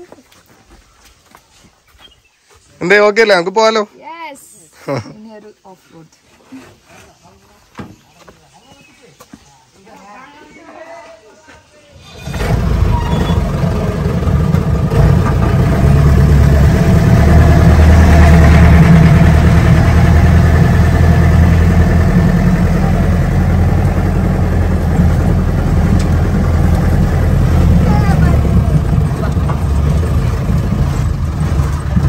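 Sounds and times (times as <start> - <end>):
engine running under load: 12.0 - 32.0.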